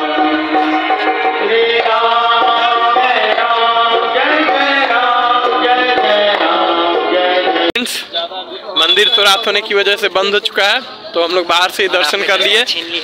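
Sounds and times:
tabla: 0:00.0 - 0:07.7.

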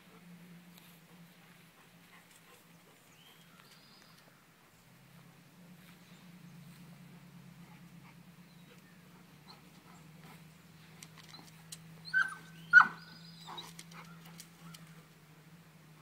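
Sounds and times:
faint low hum: 0:00.0 - 0:16.0
dog yelping: 0:11.3 - 0:14.4.

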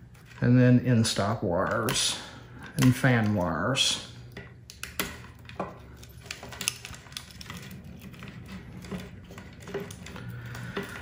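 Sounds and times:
low steady hum: 0:00.0 - 0:11.0
wires rustling: 0:00.0 - 0:11.0
plastic connectors clicking: 0:04.3 - 0:10.2.

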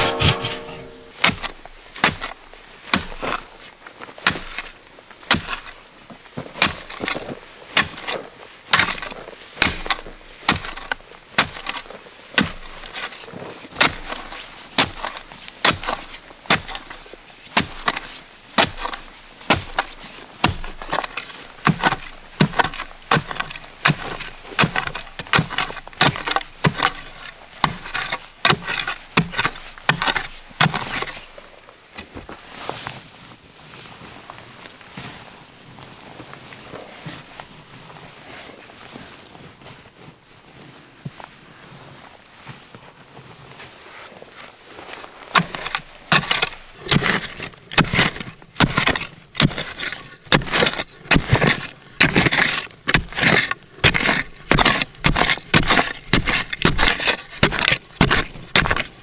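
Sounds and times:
hand tool striking wood: 0:00.0 - 0:02.2, 0:45.4 - 0:58.9.

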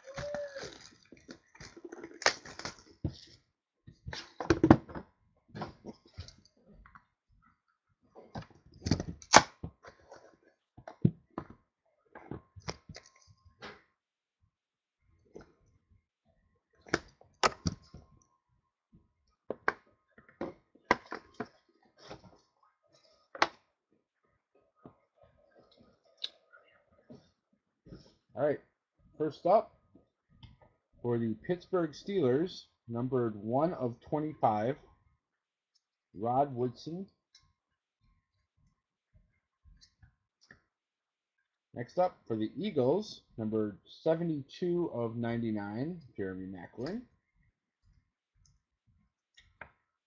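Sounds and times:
plastic wrapper rustling: 0:00.0 - 0:03.3.

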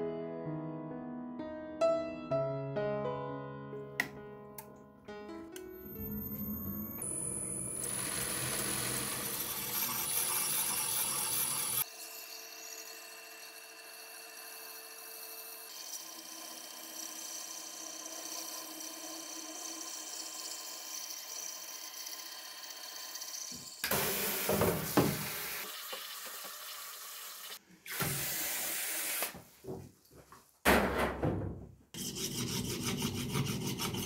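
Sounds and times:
grinding wheel running: 0:06.0 - 0:23.9
blade grinding on wheel: 0:07.0 - 0:23.8.

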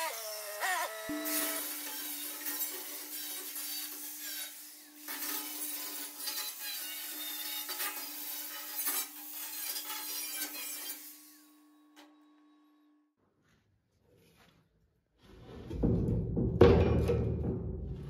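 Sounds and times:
angle grinder grinding steel: 0:00.0 - 0:06.2.

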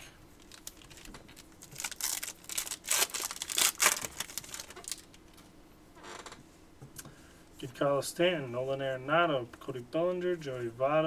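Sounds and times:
wrapper tearing and crinkling: 0:00.4 - 0:05.2.

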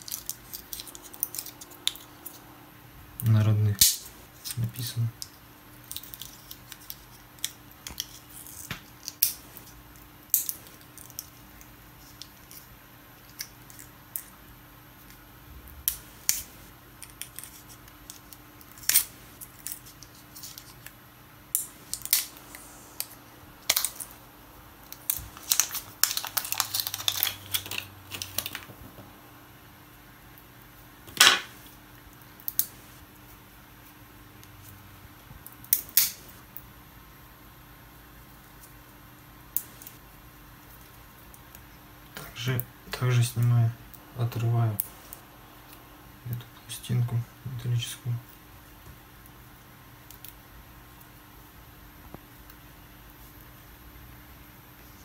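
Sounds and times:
battery cells clicking and scraping: 0:24.8 - 0:28.6.

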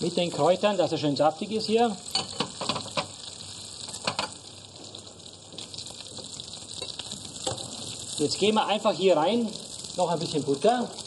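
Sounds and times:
frying pan sizzling: 0:00.0 - 0:11.0.

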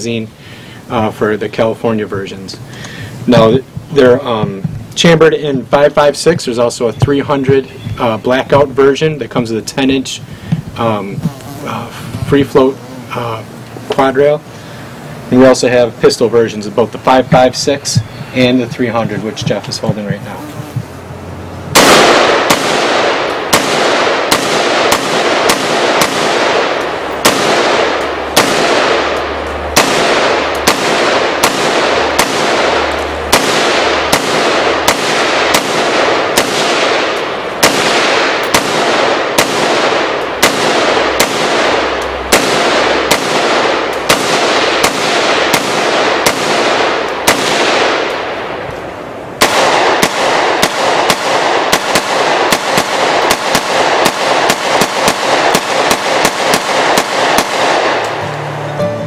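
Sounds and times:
rifle firing rapidly: 0:21.7 - 0:48.5, 0:49.4 - 0:58.2.

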